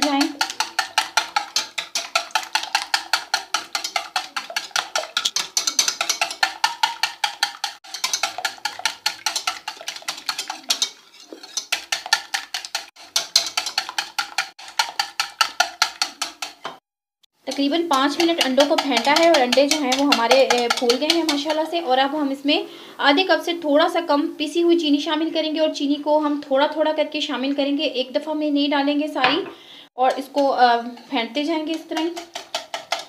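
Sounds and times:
whisk clicking against bowl: 0.0 - 16.8, 17.5 - 21.8, 30.3 - 33.0.

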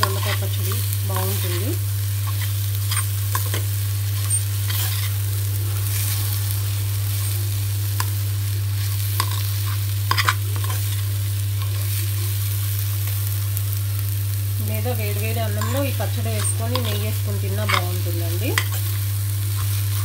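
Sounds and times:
metal spoon scraping a pan: 0.0 - 5.2, 8.8 - 12.4, 15.5 - 20.0
chutney sizzling in a pan: 0.0 - 20.0
steady low hum: 0.0 - 20.0.

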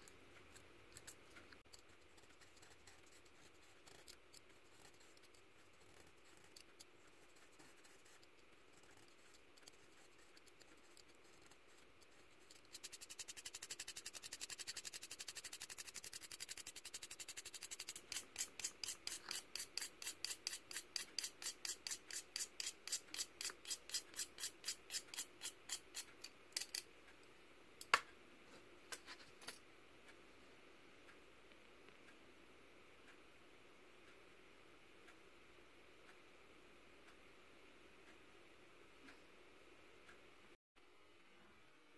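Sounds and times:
blade scraping pencil lead: 0.5 - 26.8.

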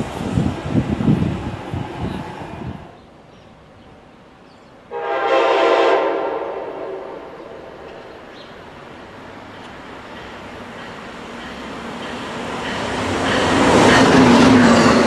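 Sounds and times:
distant train running: 0.0 - 15.0
train horn blast: 4.9 - 8.2.

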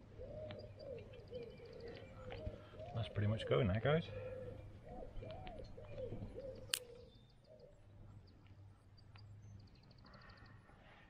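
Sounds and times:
pigeon cooing: 0.1 - 7.0.

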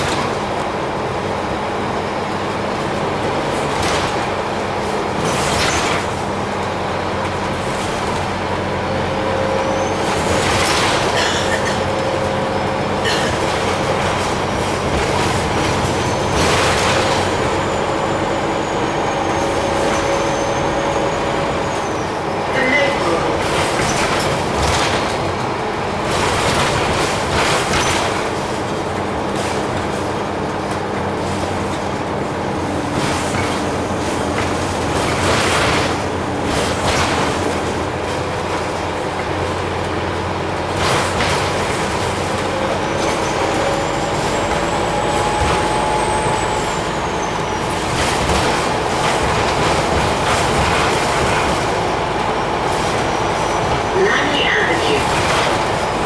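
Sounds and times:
bus engine drone: 0.0 - 56.0
road noise: 0.0 - 56.0
body knocks and rattles: 26.1 - 30.8.

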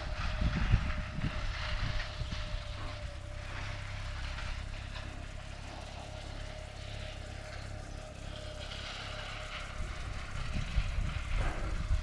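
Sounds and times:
wind buffeting microphone: 0.0 - 5.4, 9.2 - 12.0.

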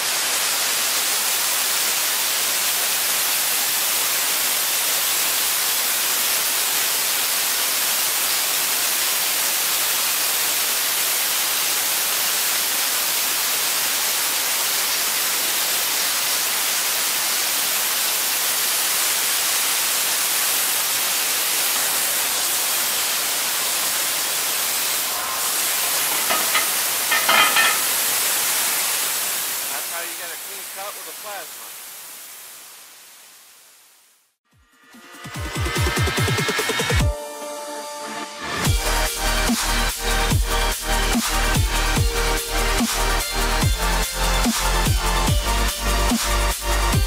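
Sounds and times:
cutting torch hissing: 18.8 - 33.2.

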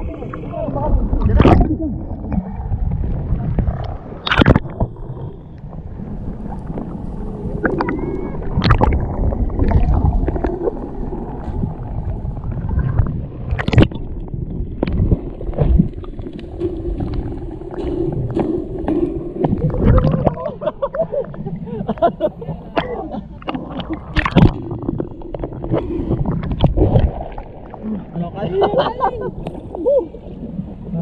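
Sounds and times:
water churning underwater: 0.0 - 31.0.

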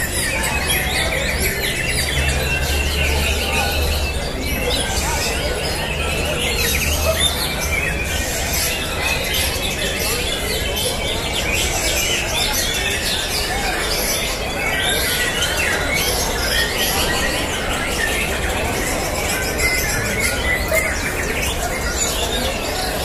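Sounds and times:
many songbirds singing: 0.0 - 23.0.

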